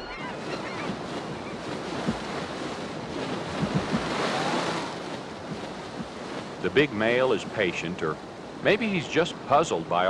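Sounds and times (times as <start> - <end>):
whitewater rushing over falls: 3.4 - 8.1.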